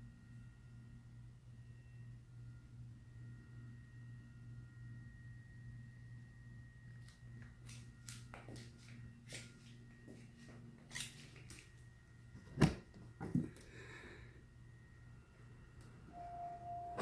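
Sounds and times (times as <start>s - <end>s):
low steady hum: 0.0s - 17.0s
faint high tones: 13.8s - 17.0s.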